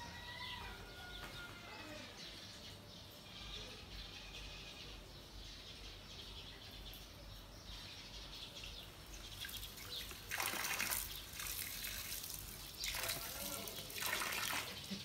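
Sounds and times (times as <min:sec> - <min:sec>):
birds chirping faintly: 0:00.1 - 0:15.0
water splashing on feet: 0:09.3 - 0:15.0
water running from a tap: 0:09.4 - 0:15.0.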